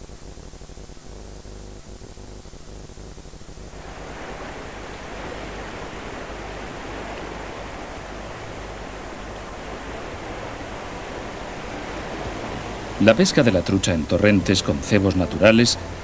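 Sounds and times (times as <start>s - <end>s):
low hum: 1.1s - 16.0s
rushing mountain torrent: 3.7s - 16.0s.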